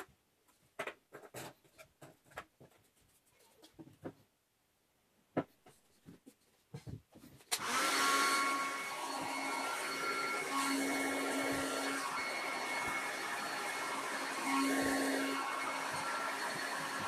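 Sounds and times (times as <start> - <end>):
heat gun fan blowing: 7.6 - 17.0.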